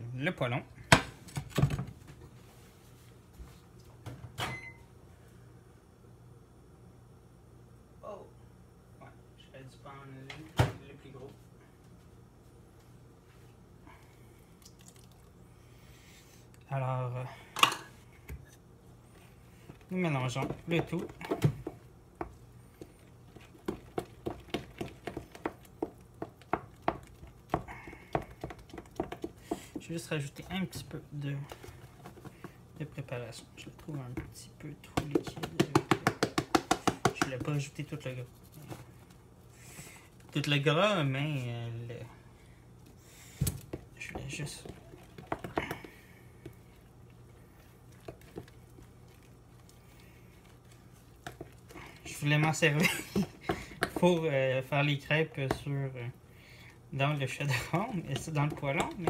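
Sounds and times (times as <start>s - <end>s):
low steady hum: 0.0s - 59.0s
kitchen items knocking: 34.9s - 37.6s.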